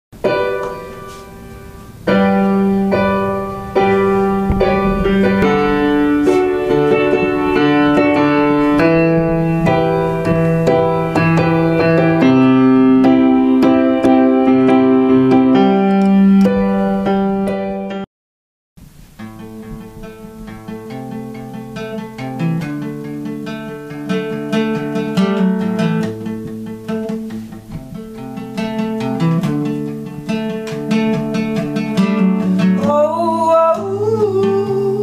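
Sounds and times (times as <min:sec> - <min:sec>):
piano-like chords: 0:00.2 - 0:18.1.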